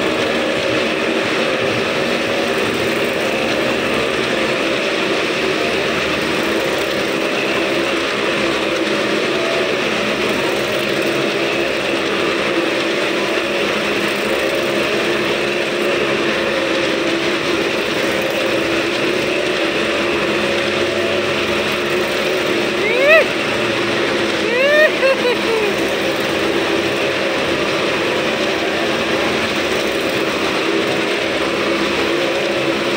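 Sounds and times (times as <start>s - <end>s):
motorcycle engines running: 0.0s - 32.9s.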